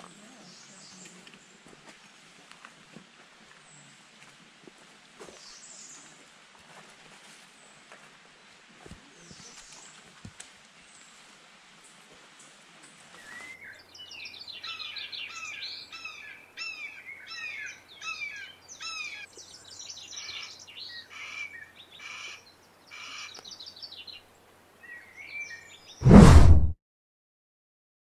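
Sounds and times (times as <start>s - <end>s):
songbird chirping: 13.1s - 26.0s.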